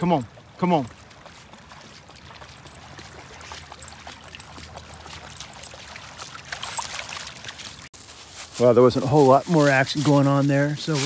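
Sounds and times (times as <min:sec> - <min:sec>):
dog splashing in water: 0:00.4 - 0:07.9.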